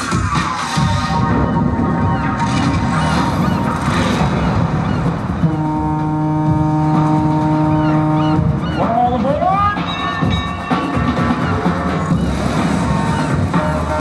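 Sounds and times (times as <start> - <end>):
music over loudspeakers: 0.0 - 14.0
deep ship's horn blast: 5.4 - 8.5.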